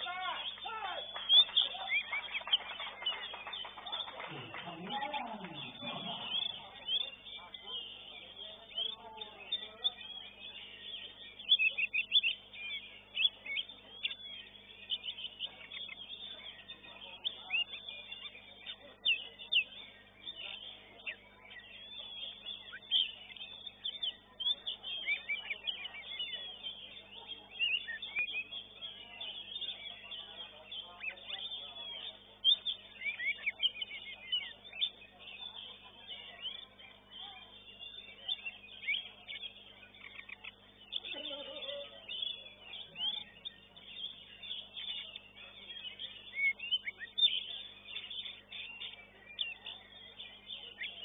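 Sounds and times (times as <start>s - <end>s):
bird singing chirps and whistles: 0.0s - 41.2s, 41.8s - 51.0s.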